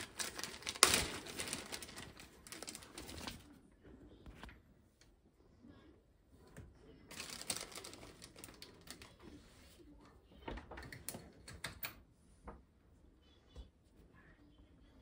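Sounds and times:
plastic bag crinkling: 0.0 - 3.6, 7.1 - 9.3.

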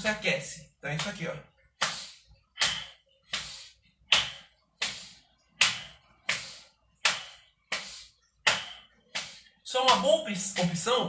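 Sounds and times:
hands slapping thighs: 0.9 - 11.0.

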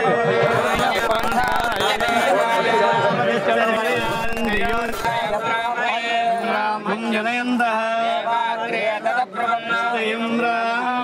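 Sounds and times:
men chanting: 0.0 - 11.0.

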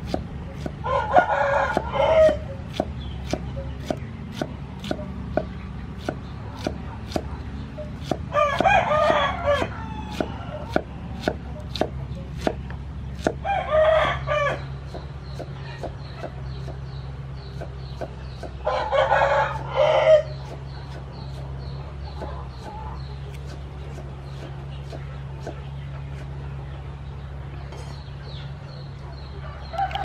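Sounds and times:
cleaver chopping on wooden board: 0.0 - 7.3, 8.0 - 13.4, 17.5 - 18.6, 23.3 - 25.6
rooster crowing: 0.8 - 2.4, 8.3 - 10.7, 13.4 - 14.7, 18.6 - 20.4.

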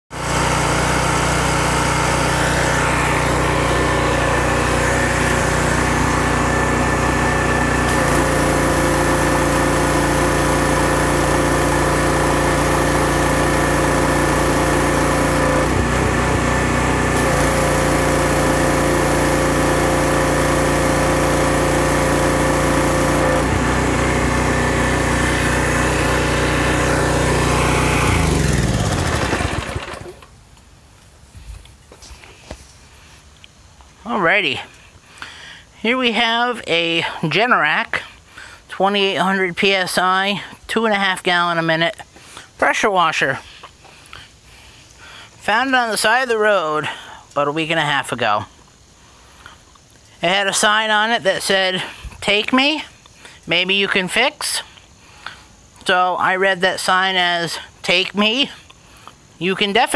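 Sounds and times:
pressure washer engine running: 0.1 - 30.3
water spraying from wand: 0.2 - 28.1.

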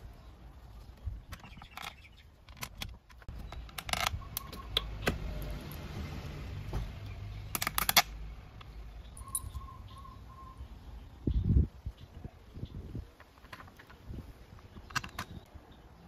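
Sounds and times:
metal bolts and socket clinking: 7.5 - 9.7.

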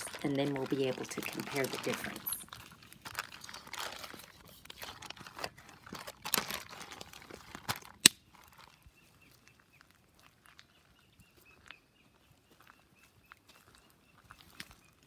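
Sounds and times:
plastic bag crinkling: 0.0 - 8.7.

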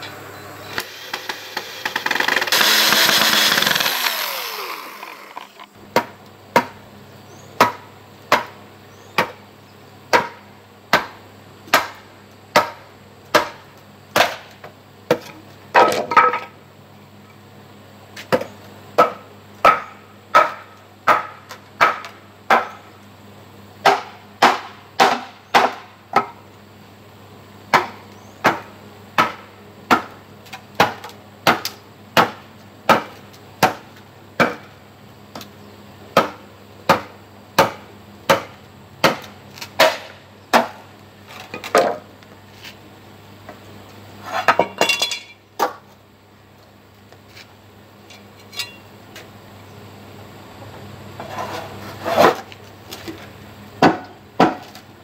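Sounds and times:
machete chopping bamboo: 1.1 - 6.8, 7.6 - 8.6, 9.2 - 9.4, 10.1 - 16.3, 18.3 - 22.8, 23.8 - 26.4, 27.7 - 30.2, 30.8 - 34.7, 36.2 - 40.8, 53.8 - 54.8.

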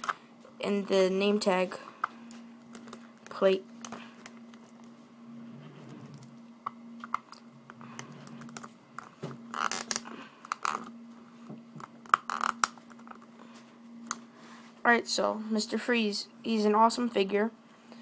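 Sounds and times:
plastic scraping rubs: 7.0 - 13.3.

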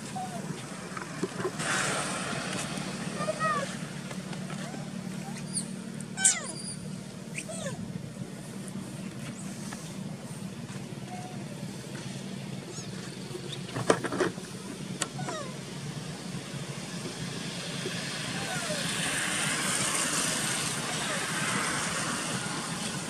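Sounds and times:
young monkey squealing: 0.1 - 0.4, 4.6 - 7.8, 15.1 - 15.6, 18.4 - 19.0.

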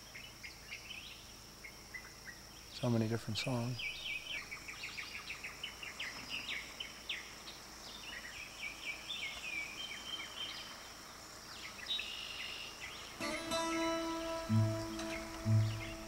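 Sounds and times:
high insect drone: 0.0 - 16.0
mockingbird singing: 1.9 - 7.3, 11.6 - 16.0.

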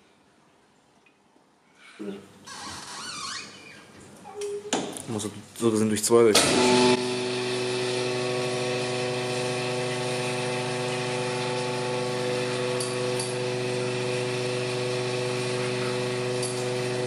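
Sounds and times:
honing machine humming: 6.4 - 17.0.

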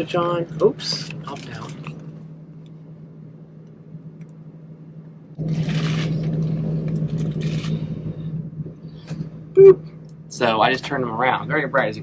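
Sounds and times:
ceiling fan motor hum: 0.0 - 12.0.

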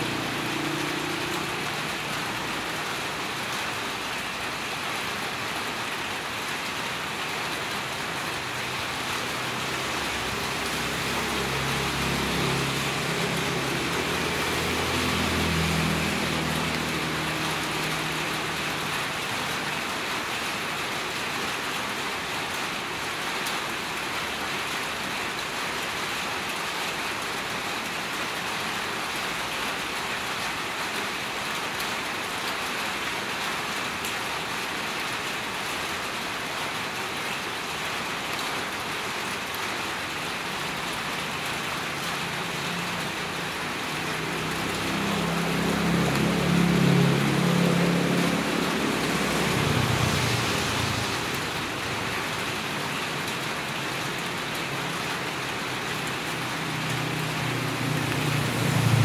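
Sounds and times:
rain on wet street: 0.0 - 59.0
vehicle passing: 9.7 - 18.8, 42.1 - 52.1, 56.0 - 59.0.

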